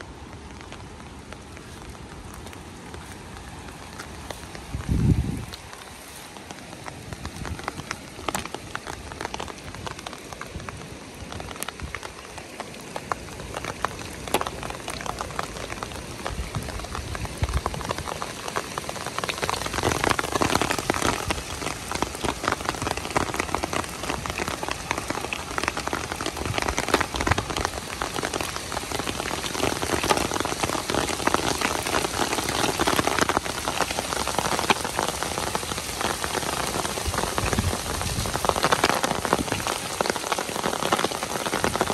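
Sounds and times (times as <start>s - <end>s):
heavy rain falling: 0.0s - 41.9s.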